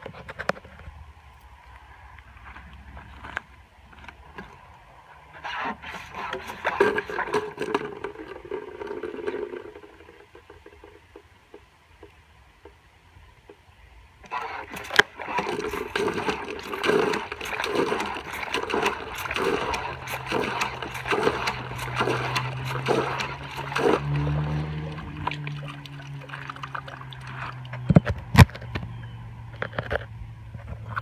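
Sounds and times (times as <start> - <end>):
low steady hum: 0.0 - 31.0
water splashing into bucket: 5.7 - 10.9, 14.2 - 28.4.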